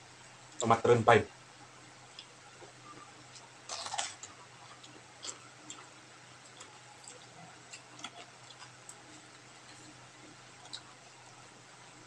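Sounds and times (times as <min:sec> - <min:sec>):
crisp bites: 0:03.7 - 0:04.3
chewing and lip smacking: 0:10.6 - 0:10.9.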